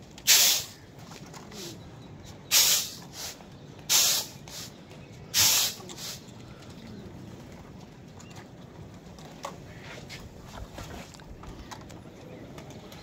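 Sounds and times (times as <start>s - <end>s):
person making hissing bursts: 0.3s - 0.8s, 2.5s - 4.7s, 5.4s - 6.2s.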